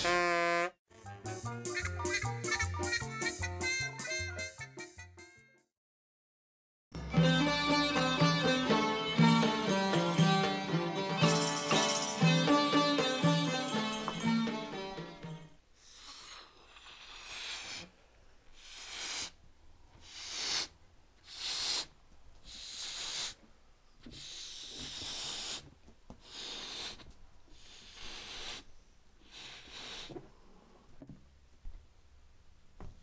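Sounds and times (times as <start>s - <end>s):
breaths blowing up balloon: 15.8s - 19.4s, 20.0s - 23.4s, 24.0s - 30.3s.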